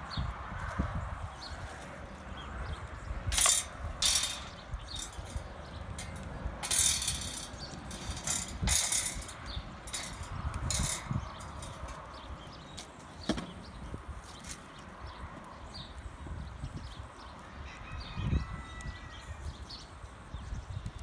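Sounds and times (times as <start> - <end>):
metal grill grate rattling: 2.6 - 14.8.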